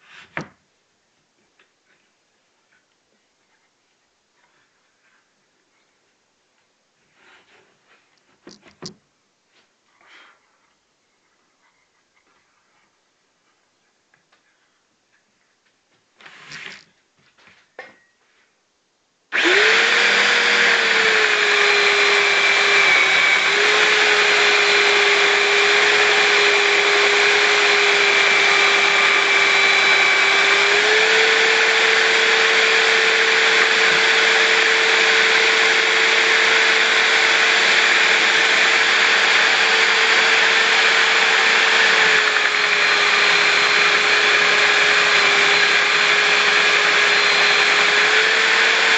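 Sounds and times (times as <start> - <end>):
belt sander motor whine: 19.3 - 48.9
wood being sanded: 19.4 - 48.9.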